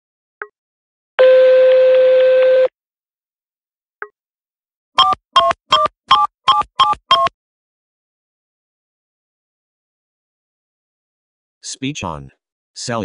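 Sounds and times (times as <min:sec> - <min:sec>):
telephone beep: 0:01.2 - 0:02.7.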